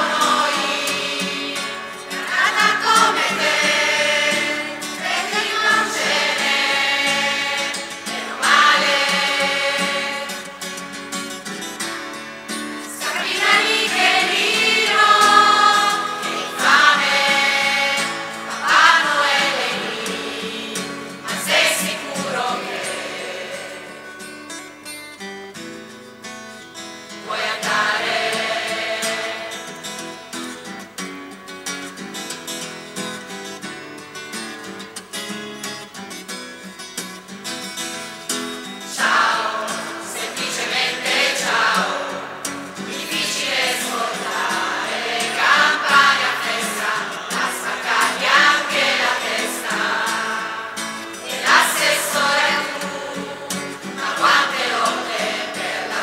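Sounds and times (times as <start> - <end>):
choir singing: 0.0 - 11.5, 12.8 - 24.4, 27.1 - 30.6, 38.9 - 56.0
acoustic guitar: 0.0 - 56.0.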